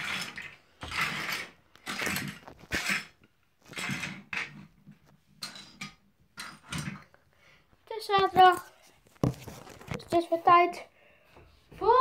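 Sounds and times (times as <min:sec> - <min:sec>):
phone handling rustling and clattering: 0:08.1 - 0:10.3.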